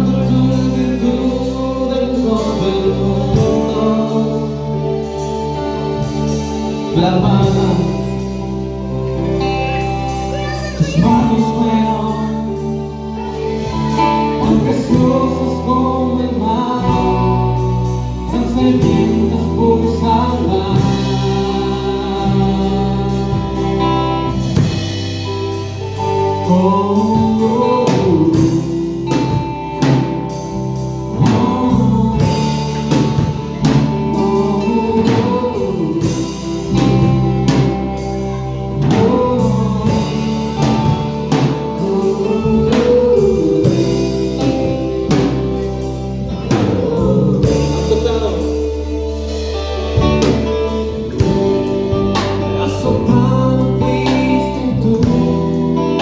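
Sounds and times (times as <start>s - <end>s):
drum kit: 0.0s - 56.0s
electric guitars: 0.0s - 56.0s
keyboard: 0.0s - 56.0s.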